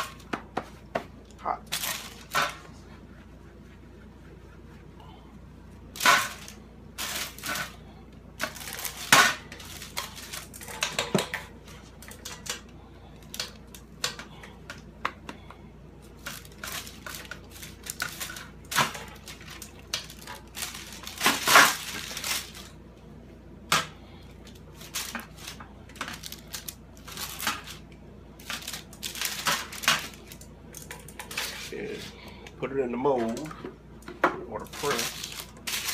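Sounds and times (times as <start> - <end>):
paper rustling: 16.2 - 22.8, 34.6 - 35.9.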